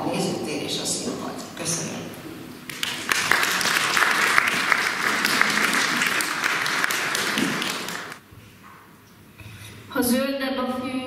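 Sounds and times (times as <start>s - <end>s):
audience applauding: 2.7s - 8.2s.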